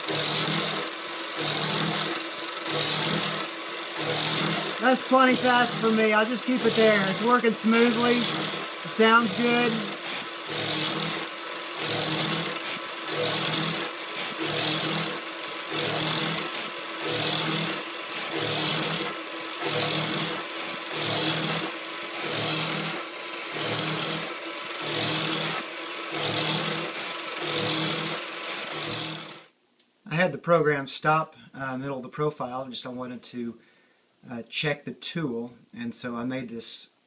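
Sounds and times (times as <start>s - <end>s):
end mill cutting titanium: 0.0s - 29.5s.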